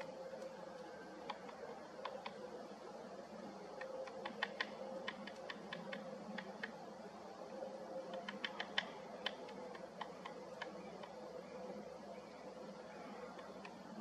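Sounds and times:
woodpecker tapping on pine cone: 1.2 - 2.4, 3.8 - 6.8, 8.1 - 11.2.

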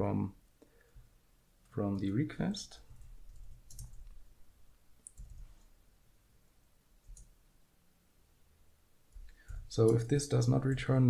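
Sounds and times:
computer keyboard keystrokes: 2.9 - 4.2, 5.0 - 5.5, 7.0 - 7.3.

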